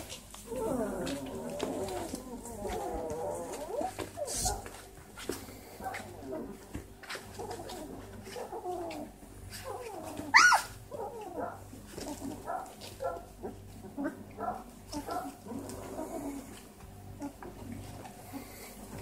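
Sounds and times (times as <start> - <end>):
puppies whimpering and squeaking: 0.0 - 4.9, 7.2 - 19.0
puppy squealing: 9.6 - 11.4.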